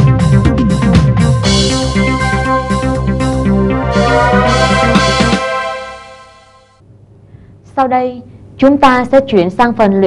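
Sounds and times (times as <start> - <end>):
electronic keyboard playing: 0.5 - 6.8.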